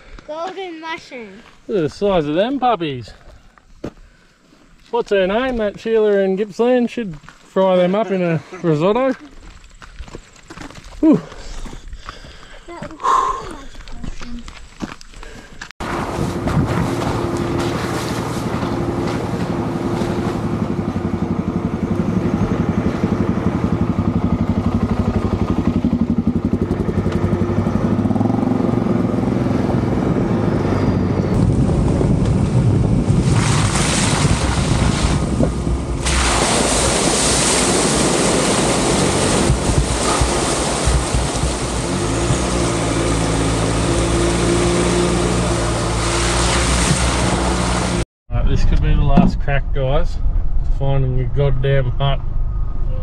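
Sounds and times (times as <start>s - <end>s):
vehicle engine running: 15.8s - 33.2s, 37.8s - 49.6s.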